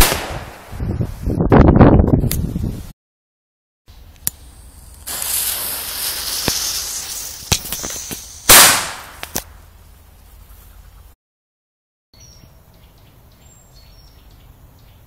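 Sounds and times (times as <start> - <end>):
firecracker bang: 0.0 - 0.7, 5.0 - 9.5
fuse hissing: 4.0 - 8.9.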